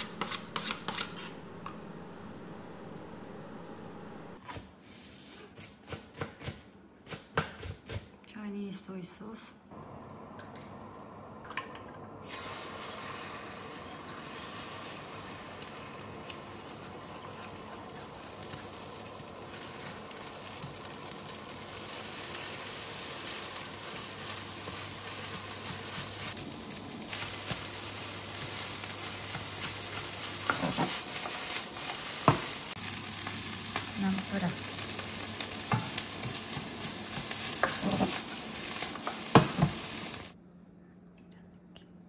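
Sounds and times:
food sizzling in a frying pan: 12.2 - 40.4.

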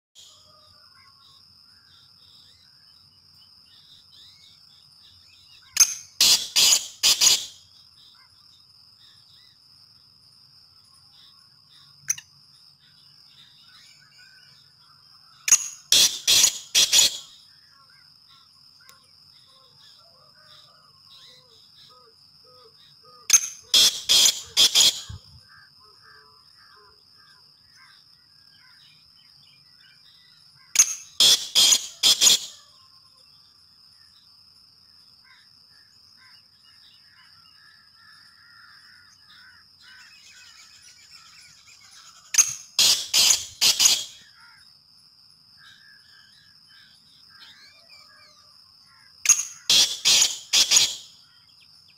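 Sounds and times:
distant bird chatter: 0.2 - 9.6, 11.0 - 25.8, 26.6 - 32.9, 35.3 - 44.7, 45.6 - 51.9
francolin shrill calls: 5.6 - 7.7, 15.5 - 17.4, 23.2 - 25.6, 30.8 - 32.9, 39.8 - 44.6, 49.2 - 51.2.

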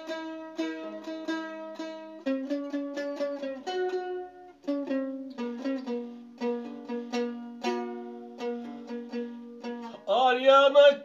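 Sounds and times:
mandolin melody: 0.0 - 11.0.

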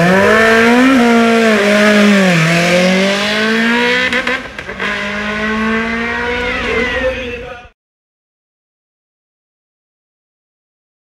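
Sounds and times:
race car engine revving: 0.0 - 7.7.

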